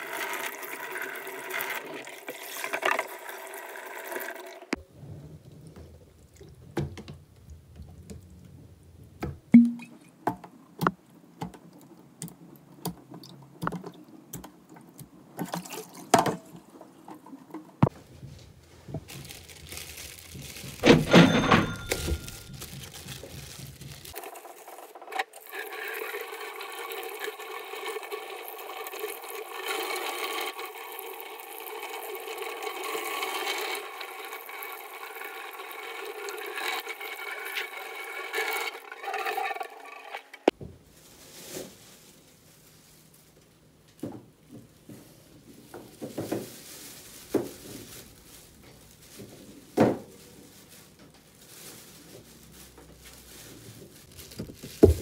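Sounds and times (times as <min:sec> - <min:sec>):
containers clattering in a metal sink: 0:15.4 - 0:17.9, 0:19.0 - 0:25.0, 0:33.5 - 0:40.5
rustling scrabble: 0:17.3 - 0:27.0, 0:44.7 - 0:55.0.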